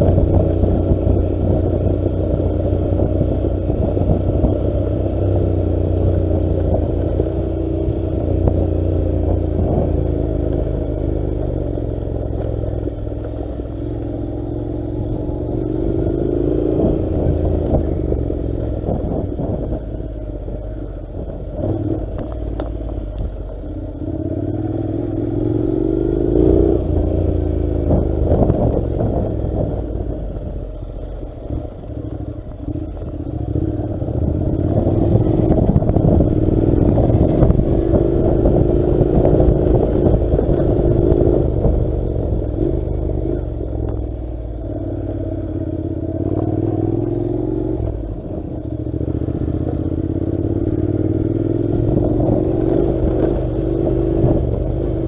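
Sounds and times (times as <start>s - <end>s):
motorcycle engine accelerating: 0.0s - 55.0s.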